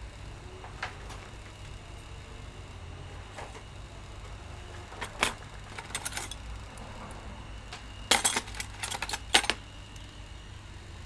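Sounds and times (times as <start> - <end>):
steady low hum: 0.0 - 11.0
clinks and rattles of tool handling: 4.9 - 6.6, 8.1 - 9.6.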